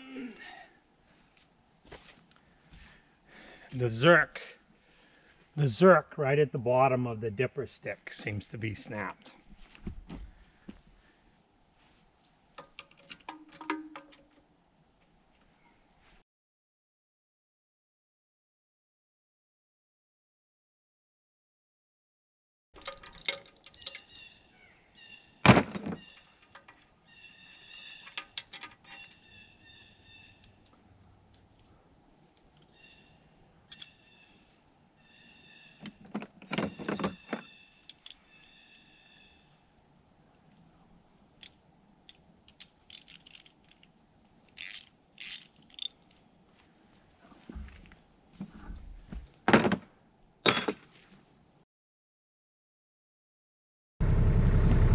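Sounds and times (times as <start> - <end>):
hand tools clicking on steel: 41.4 - 43.9, 44.5 - 46.2
hand tools clicking on metal: 44.5 - 46.2.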